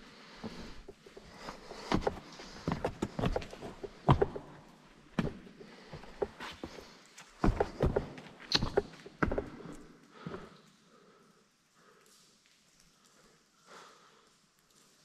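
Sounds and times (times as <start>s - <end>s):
boots knocking on rock: 2.0s - 4.6s, 7.4s - 9.6s.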